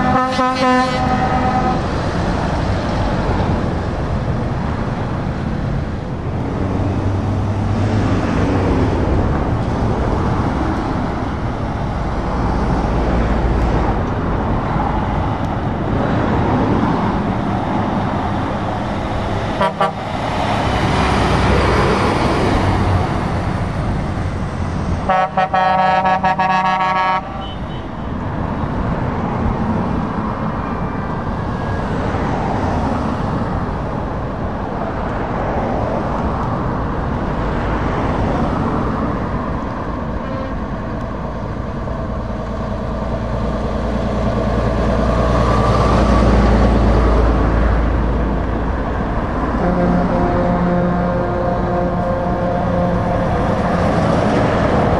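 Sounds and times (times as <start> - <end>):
vehicle horn blast: 0.0 - 1.9, 19.6 - 20.0, 25.1 - 28.2, 40.2 - 40.7, 49.6 - 53.8
road traffic driving past: 0.0 - 54.9.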